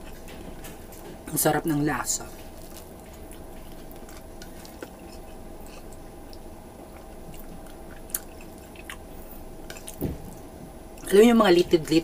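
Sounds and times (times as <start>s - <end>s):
person chewing wetly: 2.3s - 11.1s.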